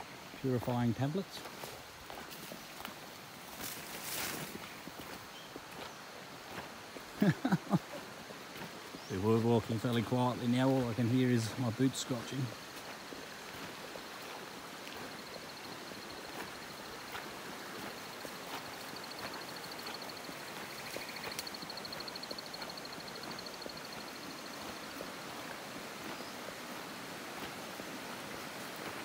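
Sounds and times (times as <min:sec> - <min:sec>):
running water rushing: 0:00.0 - 0:29.0
boots scratching on track: 0:01.4 - 0:07.6.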